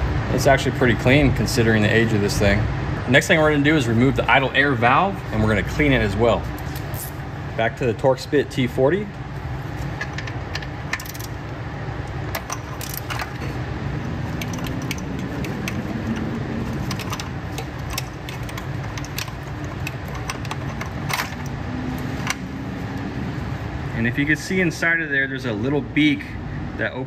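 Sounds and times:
low background hum: 0:00.0 - 0:27.0
metallic ratchet clicks: 0:10.0 - 0:11.4, 0:12.3 - 0:22.5.

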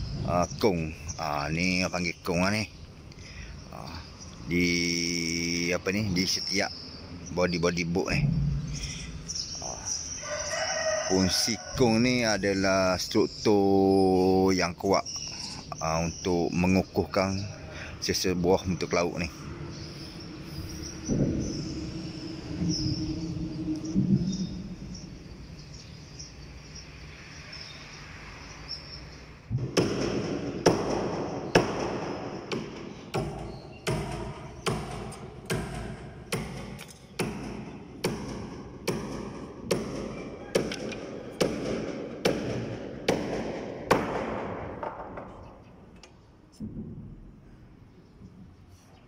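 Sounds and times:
hammer blows on wooden hull: 0:29.5 - 0:45.3.

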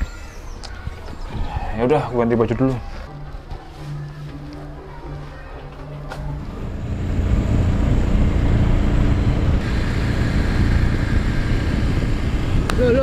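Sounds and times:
road and wind noise: 0:06.2 - 0:13.0
scooter engine hum: 0:06.3 - 0:13.0.

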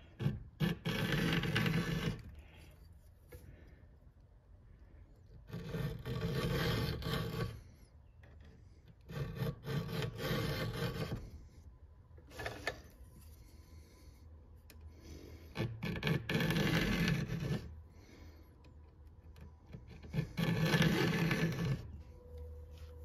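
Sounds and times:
file rasping on chainsaw chain: 0:09.1 - 0:11.2, 0:20.0 - 0:21.8.

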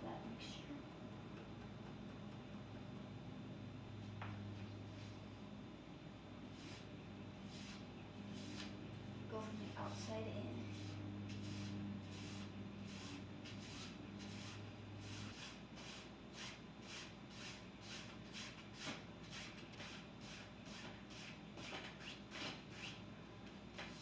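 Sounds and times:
low steady hum: 0:00.0 - 0:21.4
paintbrush strokes on canvas: 0:06.5 - 0:23.0.

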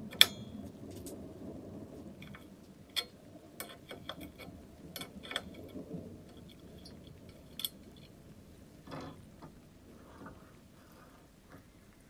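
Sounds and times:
metal clicks and clinks: 0:00.1 - 0:01.2, 0:02.2 - 0:08.2.

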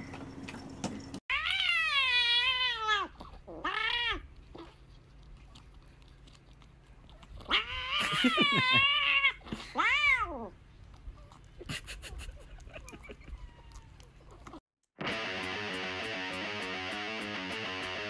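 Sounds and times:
cat meowing and yowling: 0:01.3 - 0:04.2, 0:07.4 - 0:10.5, 0:13.3 - 0:14.1.

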